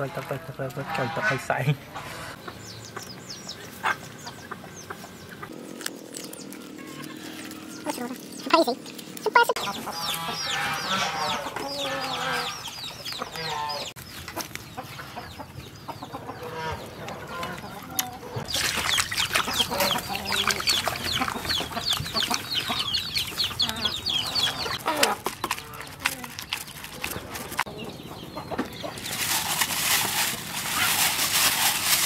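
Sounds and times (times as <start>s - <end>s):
chickens clucking: 0.0s - 31.6s
rapid high chicken calls: 9.6s - 14.0s, 14.8s - 25.9s.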